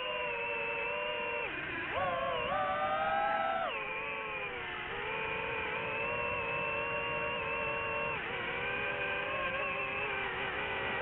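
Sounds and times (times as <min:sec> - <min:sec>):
drone motors whining: 0:00.0 - 0:11.0.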